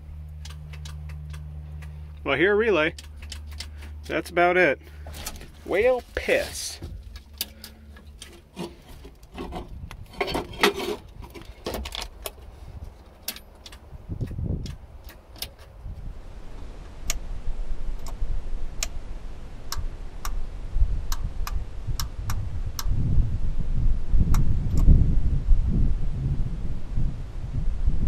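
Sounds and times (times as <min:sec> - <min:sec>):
low rumble: 0:00.0 - 0:28.0
metallic ignition key clicks: 0:00.3 - 0:01.9, 0:02.9 - 0:03.9, 0:13.2 - 0:15.8.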